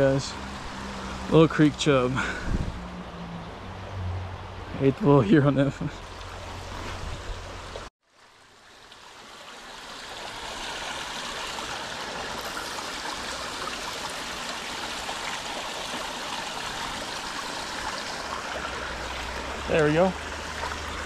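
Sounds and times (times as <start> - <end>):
creek water trickling: 0.0 - 21.0
water spilling from pipe: 5.6 - 21.0.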